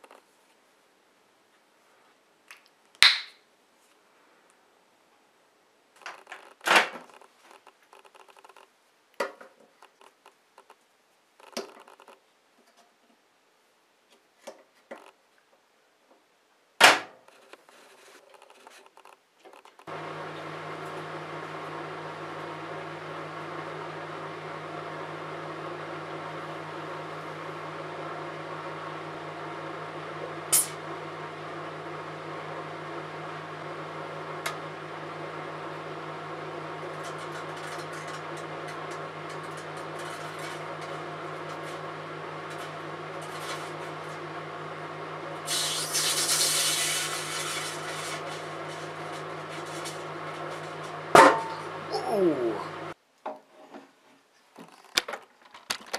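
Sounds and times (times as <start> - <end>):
microwave humming: 19.9 - 53.0.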